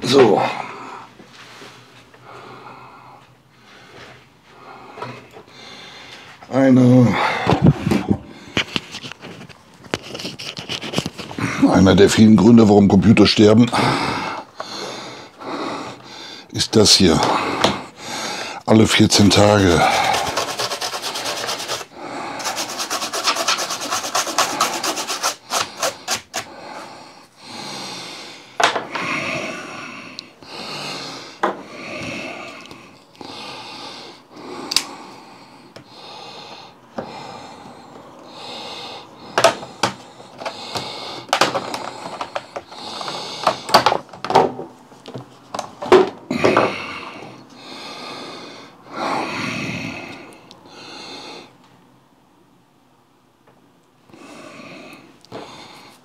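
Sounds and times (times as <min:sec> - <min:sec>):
scraping on plastic vent grille: 0:19.7 - 0:26.5.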